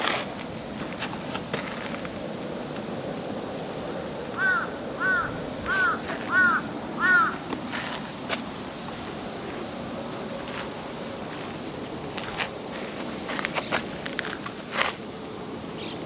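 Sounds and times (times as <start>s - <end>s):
outdoor background noise: 0.0s - 16.0s
crow cawing: 4.4s - 7.4s.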